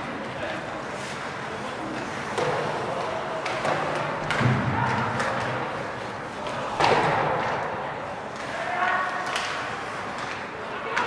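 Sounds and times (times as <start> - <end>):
hockey sticks striking: 0.0 - 11.0.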